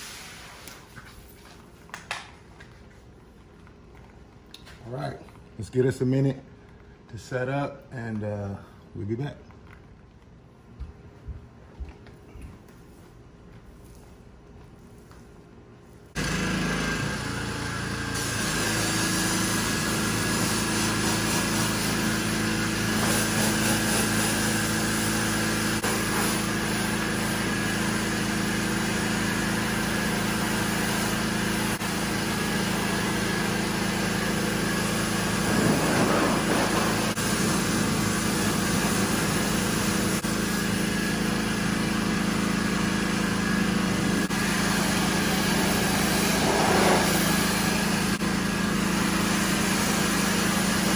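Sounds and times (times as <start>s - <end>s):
water spray hissing: 0.0s - 1.0s, 18.1s - 27.4s, 34.7s - 40.2s, 44.3s - 48.2s
pressure washer engine running: 16.1s - 50.9s.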